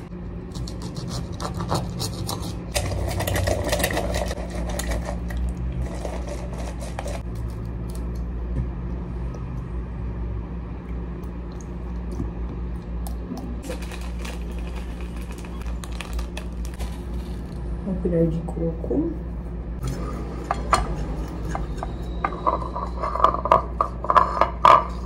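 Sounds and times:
steady low hum: 0:00.0 - 0:25.0
egg cracking: 0:11.2 - 0:17.6.

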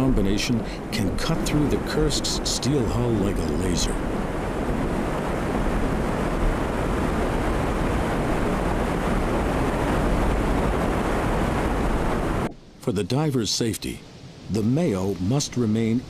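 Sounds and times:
water jet cutting roar: 0:00.0 - 0:12.5.

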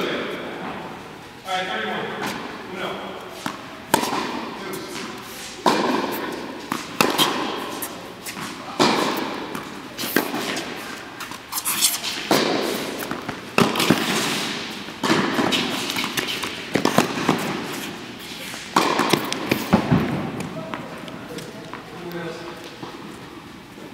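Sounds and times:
ball bouncing on court: 0:03.4 - 0:04.4, 0:05.6 - 0:07.6, 0:08.3 - 0:10.6, 0:12.2 - 0:14.4, 0:15.0 - 0:17.6, 0:18.7 - 0:22.2
tennis ball hit by racket: 0:03.4 - 0:10.9, 0:11.8 - 0:20.5.

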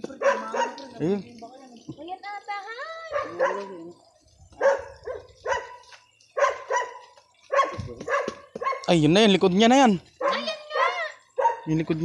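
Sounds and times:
dog barking: 0:00.1 - 0:00.9, 0:03.1 - 0:03.8, 0:04.6 - 0:08.9, 0:10.2 - 0:10.5, 0:11.4 - 0:11.8.

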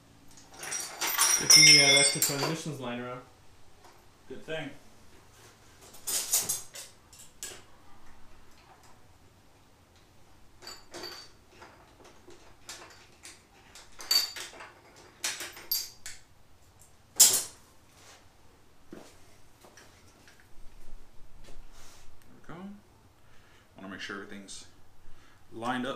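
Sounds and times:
metal parts clinking on workbench: 0:00.3 - 0:02.6, 0:10.6 - 0:16.2, 0:17.2 - 0:17.6.

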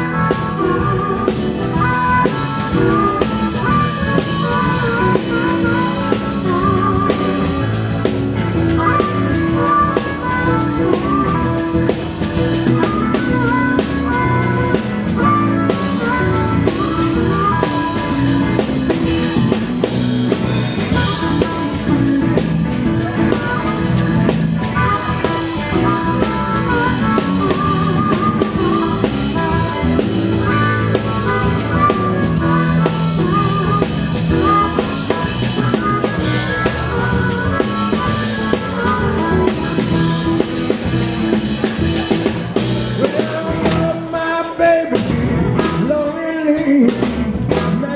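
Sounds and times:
bass guitar: 0:00.0 - 0:47.9
drum kit: 0:00.0 - 0:47.9
electric guitars: 0:00.0 - 0:47.9
harmonica: 0:00.0 - 0:47.9
keyboards: 0:00.0 - 0:47.9.

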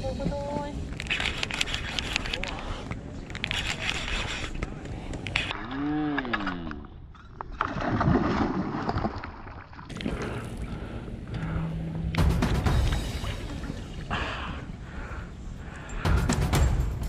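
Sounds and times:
water splashing and churning: 0:06.9 - 0:16.5
low hum: 0:09.9 - 0:17.0.

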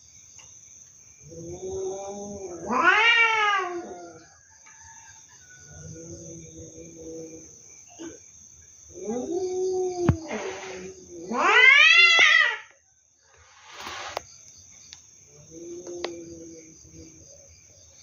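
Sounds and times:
cats caterwauling: 0:01.2 - 0:04.4, 0:08.9 - 0:12.8.

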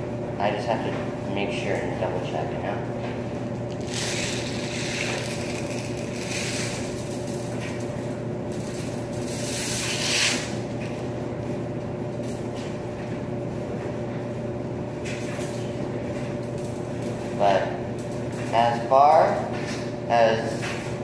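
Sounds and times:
laundry machines humming: 0:00.0 - 0:21.0.

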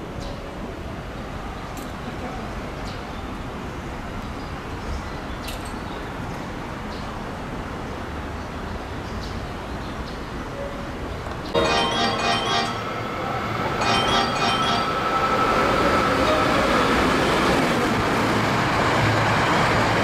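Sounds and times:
faint high-pitched sounds: 0:11.6 - 0:17.2.

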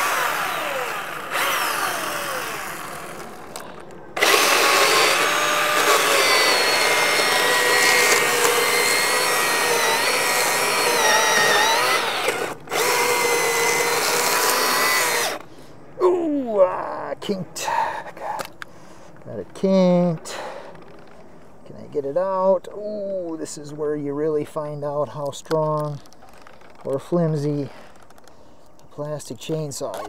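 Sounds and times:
chainsaw cutting into log: 0:00.0 - 0:15.4
electric chainsaw whining: 0:00.0 - 0:15.5.

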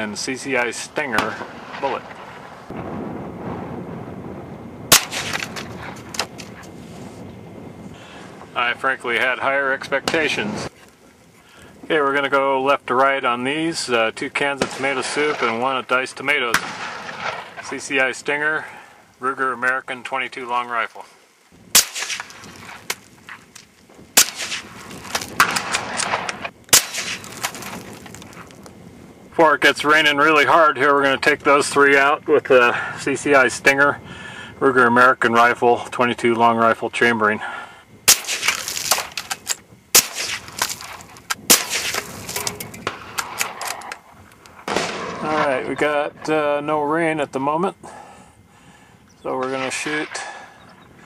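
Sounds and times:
rifle shots: 0:04.9 - 0:06.6, 0:14.4 - 0:15.8, 0:16.4 - 0:17.9, 0:21.7 - 0:23.0, 0:24.2 - 0:27.9, 0:38.1 - 0:44.0, 0:44.6 - 0:45.8.

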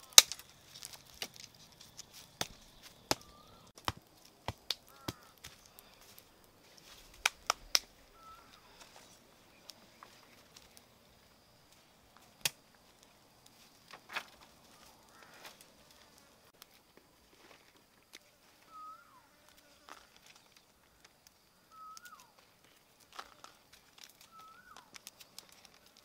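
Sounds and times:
faint bird chirp: 0:01.5 - 0:03.8, 0:07.6 - 0:11.6, 0:18.5 - 0:22.5, 0:24.2 - 0:25.7.

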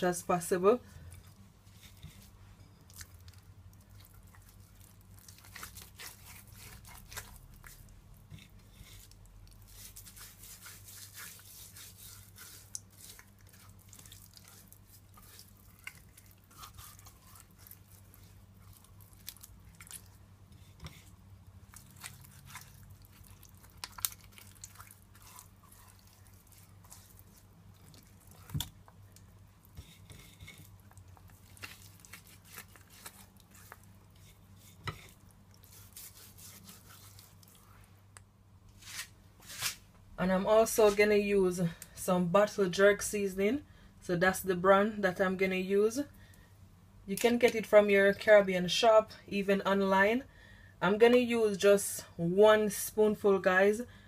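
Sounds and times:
hands squishing wet fish: 0:01.0 - 0:38.2.

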